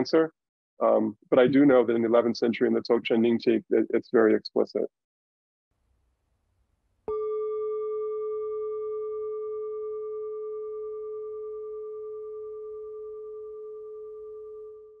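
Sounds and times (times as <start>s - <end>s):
singing bowl ringing: 7.1s - 15.0s.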